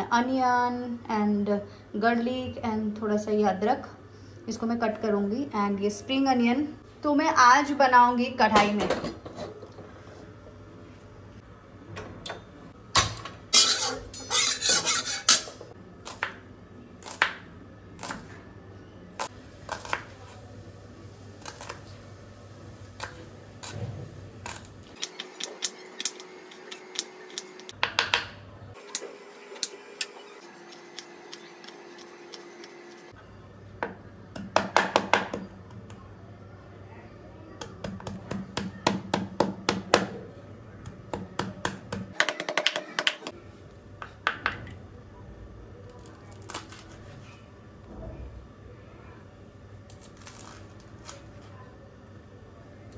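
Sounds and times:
utensils and pots clinking: 0:12.2 - 0:15.7.

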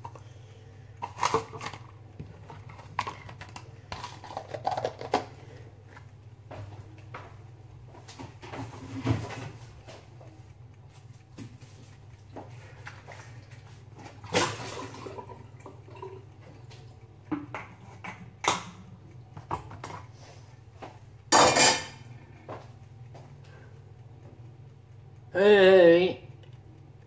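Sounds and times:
steady low hum: 0:00.0 - 0:27.0
pots and cutlery clinking: 0:21.3 - 0:22.1.

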